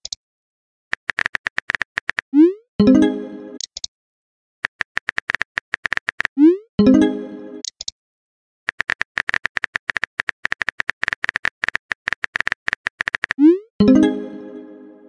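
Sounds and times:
smartphone keyboard typing clicks: 0.9s - 2.2s, 3.6s - 3.9s, 4.6s - 6.3s, 7.6s - 8.0s, 8.7s - 13.4s
ringing message chime: 2.8s - 3.6s, 6.8s - 7.6s, 13.8s - 15.0s.

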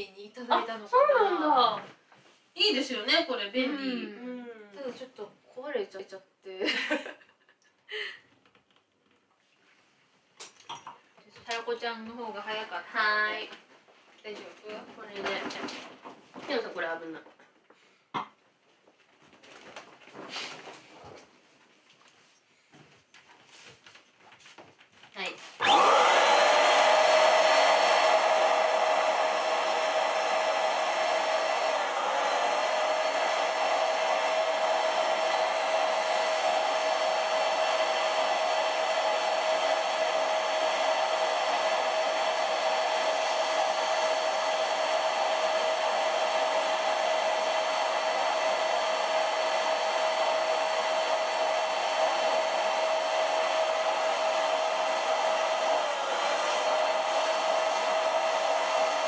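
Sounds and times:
electric air pump whining: 25.6s - 59.0s.

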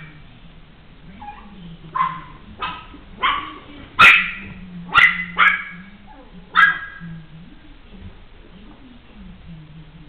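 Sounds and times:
puppy barking: 1.2s - 7.0s.

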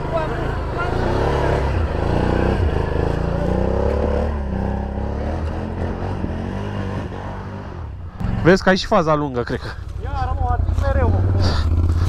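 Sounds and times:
atv engine revving: 0.0s - 12.0s.

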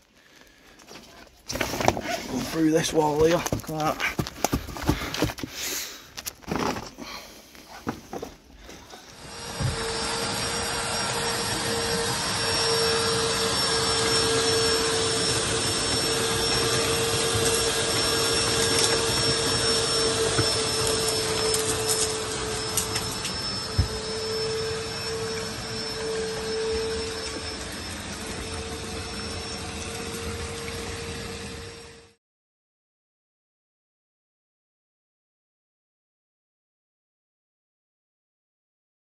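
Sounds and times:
pond vacuum running: 0.2s - 5.6s, 6.5s - 32.2s.

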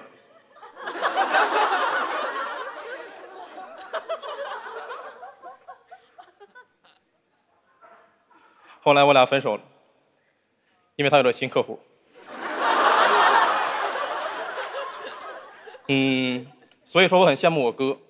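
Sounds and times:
studio audience laughing: 0.4s - 7.1s, 12.2s - 16.7s.

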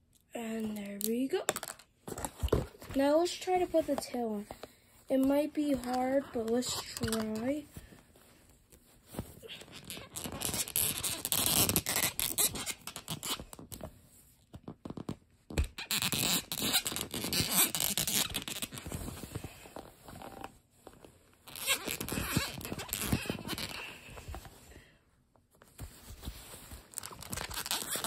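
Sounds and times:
plastic parts scraping together: 0.7s - 3.0s, 5.7s - 7.6s.

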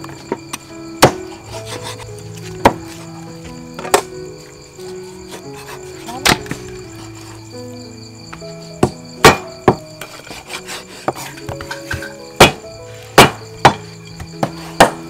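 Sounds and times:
cleaver chopping on wooden block: 8.8s - 9.8s, 13.2s - 13.8s, 14.4s - 15.0s.

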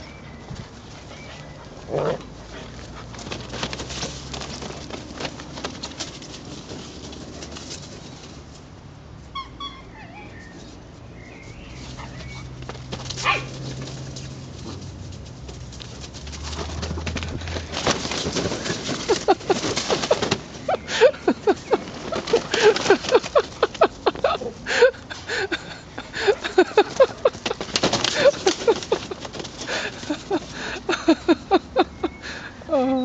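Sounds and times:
scuffling knocks: 2.6s - 8.6s, 12.0s - 24.4s, 26.3s - 30.8s
dogs yipping and whining: 9.3s - 10.8s, 11.4s - 12.6s, 13.2s - 13.5s.

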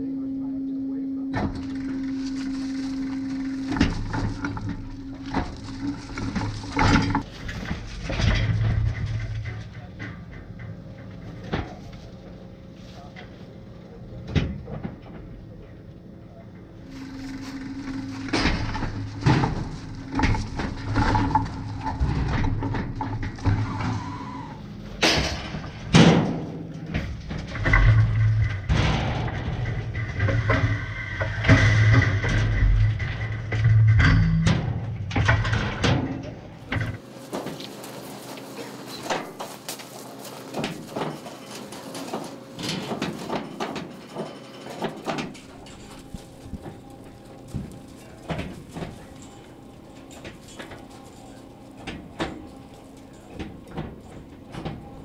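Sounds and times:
steady low hum: 0.0s - 55.0s
steel gate rattling and clanking: 1.5s - 11.8s, 16.9s - 55.0s
loud metal bangs: 16.9s - 37.6s.

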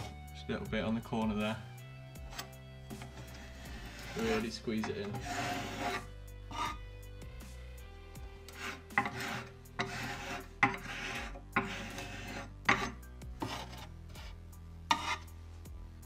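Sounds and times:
quiet background music: 0.0s - 16.0s
filler knife scraping wood: 2.3s - 6.8s, 8.4s - 15.3s.

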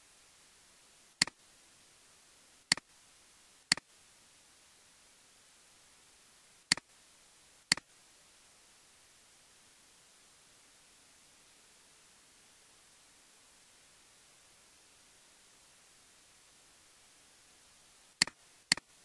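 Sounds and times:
faint steady hiss: 0.0s - 19.0s
computer mouse clicks: 1.2s - 1.4s, 6.7s - 6.9s, 18.2s - 19.0s.

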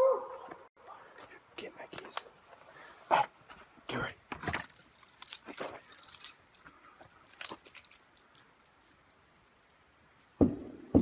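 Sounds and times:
keys jangling: 4.5s - 9.1s.

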